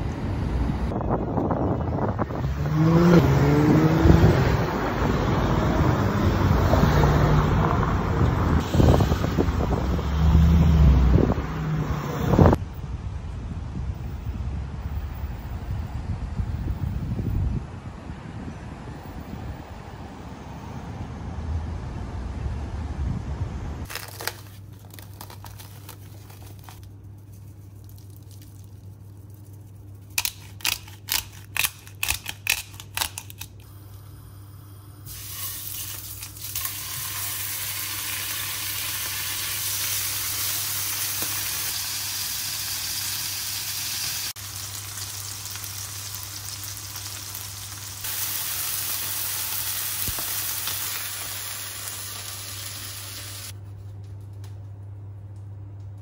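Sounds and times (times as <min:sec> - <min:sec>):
traffic noise: 0:00.0 - 0:54.0
wind: 0:00.0 - 0:56.0
steaks sizzling in a frying pan: 0:36.6 - 0:53.5.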